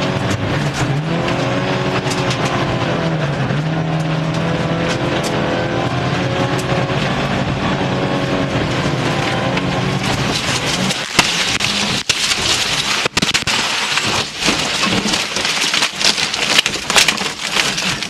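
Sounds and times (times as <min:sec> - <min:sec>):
car engine: 0:00.0 - 0:18.0
car ploughing through brush: 0:08.4 - 0:18.0.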